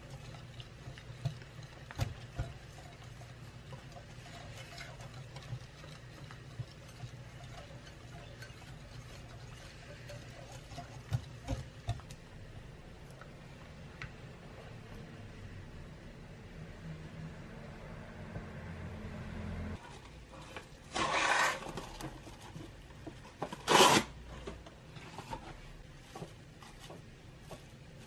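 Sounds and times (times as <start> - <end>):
wire whisk scraping glass bowl: 0.0 - 12.2, 21.0 - 21.8.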